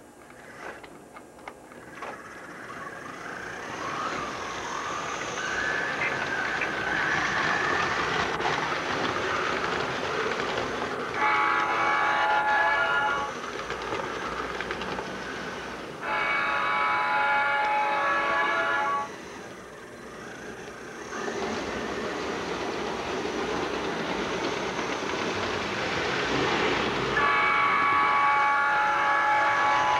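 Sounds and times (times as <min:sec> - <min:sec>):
model train rumbling on track: 0:00.0 - 0:29.9
buzzy train horn: 0:11.2 - 0:13.4, 0:16.0 - 0:19.2, 0:27.1 - 0:29.9.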